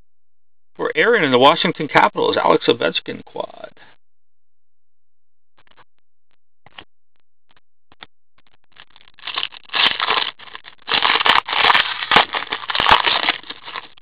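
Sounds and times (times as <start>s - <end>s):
foil wrapper crinkling and tearing: 8.8s - 14.0s.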